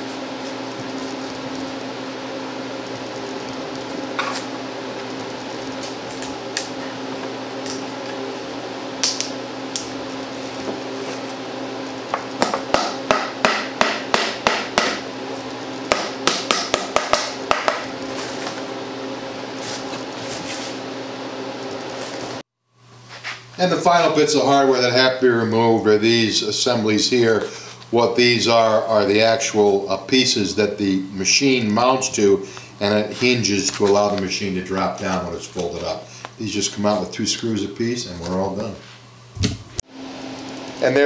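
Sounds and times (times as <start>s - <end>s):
steady background hum: 0.0s - 41.0s.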